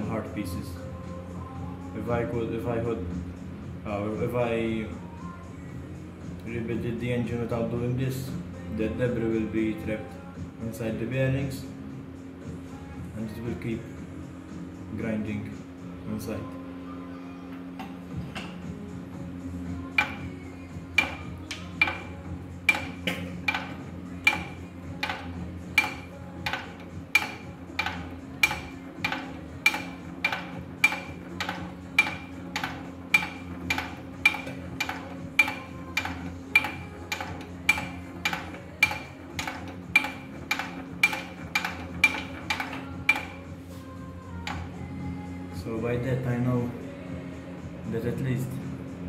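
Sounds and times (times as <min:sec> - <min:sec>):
steady hum: 0:00.0 - 0:49.0
regular sharp ticking: 0:19.9 - 0:43.5.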